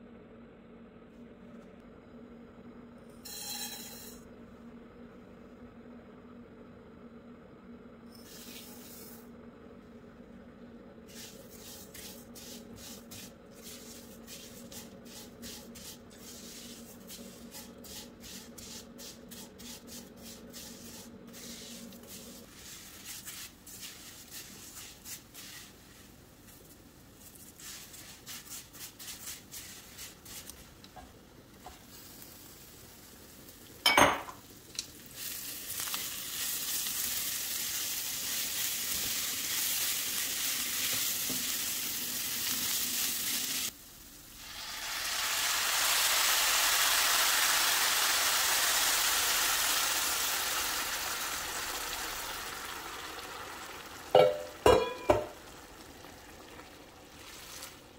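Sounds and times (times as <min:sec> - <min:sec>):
noodles sizzling in oil: 0:11.0 - 0:57.9
spatula scraping a pan: 0:11.1 - 0:26.1, 0:27.2 - 0:30.6.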